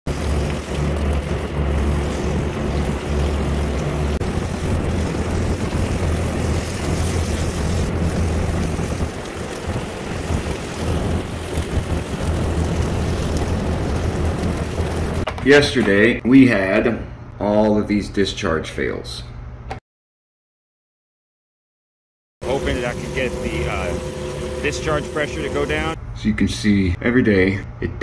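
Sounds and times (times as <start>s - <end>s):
hose water spraying on coil: 0.0s - 15.3s, 22.4s - 26.0s
low machinery hum: 0.1s - 15.3s, 22.4s - 26.9s
wind on microphone: 4.2s - 15.2s.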